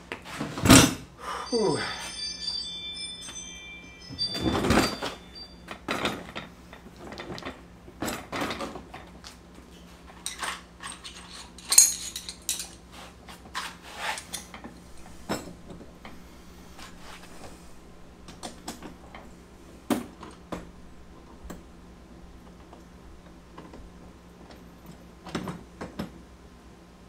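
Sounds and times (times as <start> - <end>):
brief high ringing: 1.2 - 6.2, 14.8 - 21.8.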